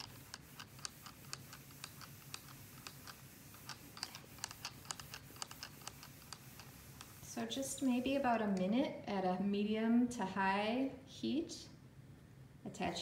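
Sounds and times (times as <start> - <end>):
iron sliding over fabric: 0.0 - 8.6.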